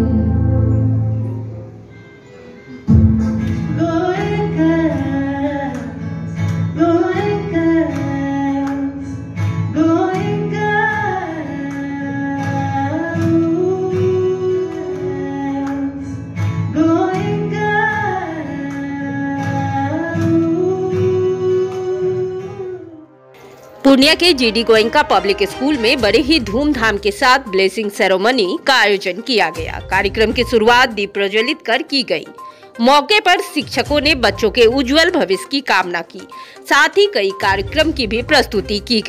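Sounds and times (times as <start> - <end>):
acoustic guitar: 0.0 - 27.7
person singing: 2.9 - 9.1, 9.7 - 16.1, 16.7 - 23.1.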